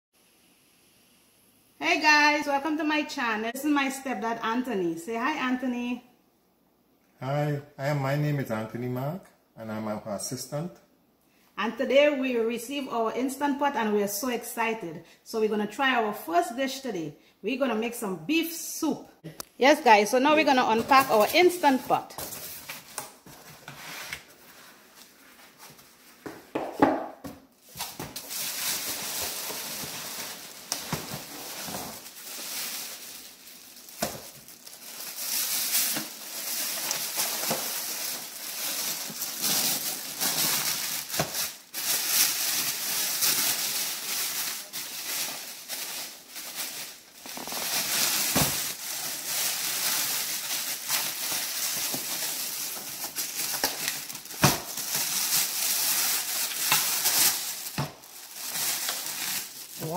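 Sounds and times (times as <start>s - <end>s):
plastic bag crinkling: 20.5s - 23.4s, 27.6s - 59.9s.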